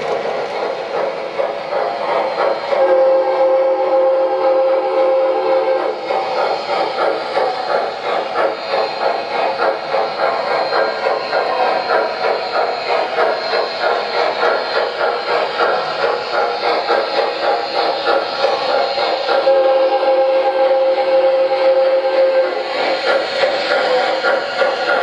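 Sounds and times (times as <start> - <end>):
rhythmic steam chuffing: 0.0 - 25.0
chime steam whistle: 2.5 - 7.7, 10.1 - 24.6.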